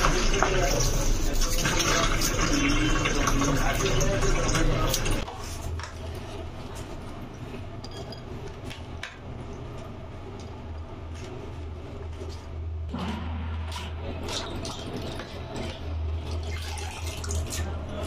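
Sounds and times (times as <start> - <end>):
low hum: 9.4 - 18.0.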